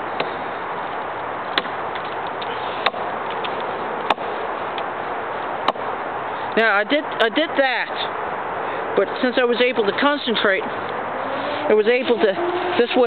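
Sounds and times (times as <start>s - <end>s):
axe striking wood: 1.6s - 1.8s.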